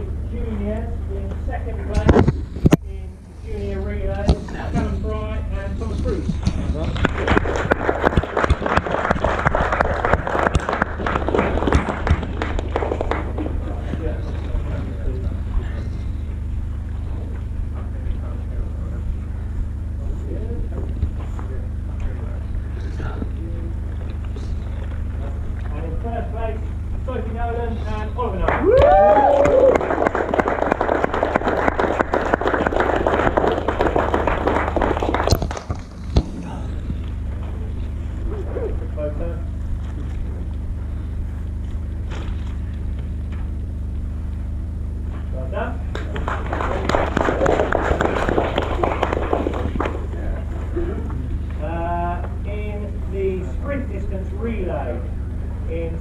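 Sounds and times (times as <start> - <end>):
crowd applauding: 6.8 - 14.5, 28.4 - 36.0, 45.9 - 50.9
close loud hand claps: 7.0 - 14.0, 28.4 - 36.3, 45.9 - 50.2.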